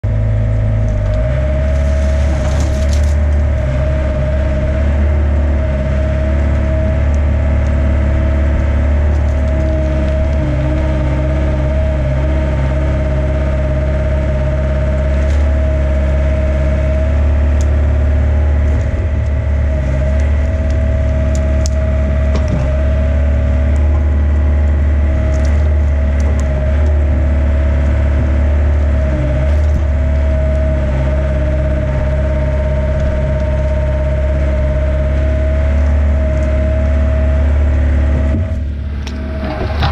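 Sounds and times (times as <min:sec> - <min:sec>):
excavator diesel engine: 0:00.0 - 0:39.9
bucket scraping soil and stones: 0:01.2 - 0:03.8, 0:39.0 - 0:39.9.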